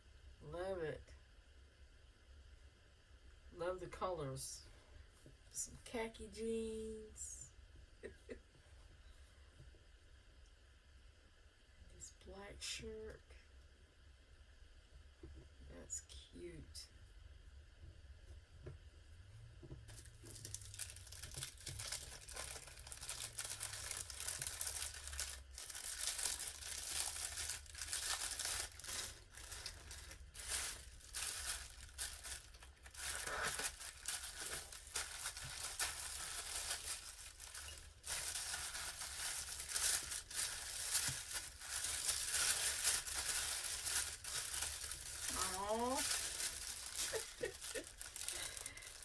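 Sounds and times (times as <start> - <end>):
plastic packaging crinkling: 19.9 - 49.0.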